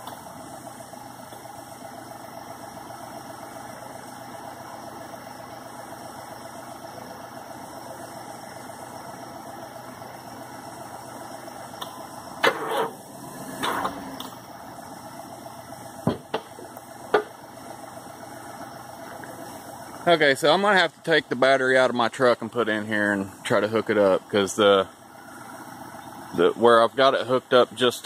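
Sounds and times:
vehicle engine idling: 0.0 - 28.0
sharp knocks and clatters: 16.0 - 17.4.

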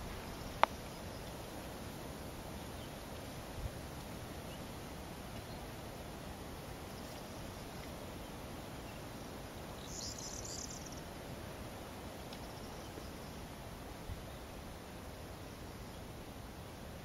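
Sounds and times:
background hiss: 0.0 - 17.0
bird song phrase: 9.7 - 11.0.

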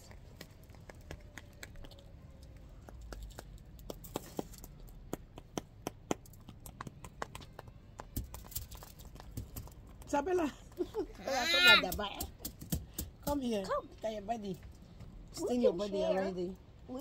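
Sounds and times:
food being chewed: 0.0 - 11.1.

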